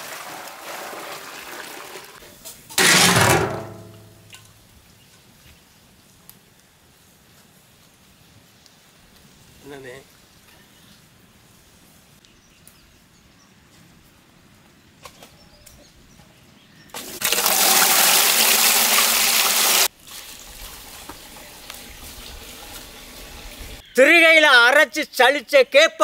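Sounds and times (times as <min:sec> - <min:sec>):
water pouring into metal vessel: 0:17.0 - 0:22.6.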